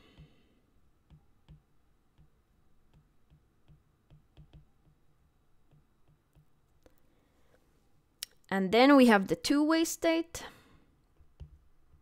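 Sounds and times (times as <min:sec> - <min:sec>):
stylus tapping on glass screen: 0:01.0 - 0:06.6.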